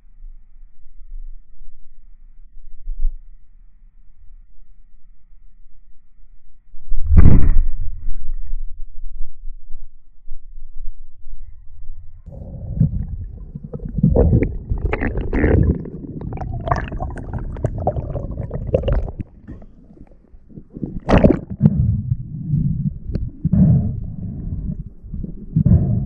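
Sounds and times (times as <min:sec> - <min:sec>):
muffled underwater gurgling: 0:12.3 - 0:26.0.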